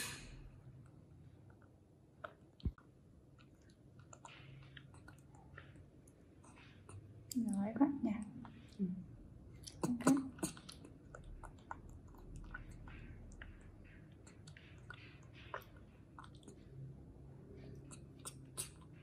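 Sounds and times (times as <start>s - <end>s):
monkey slurping through a straw: 9.5s - 19.0s
small mouth clicks: 9.6s - 16.6s, 17.7s - 19.0s.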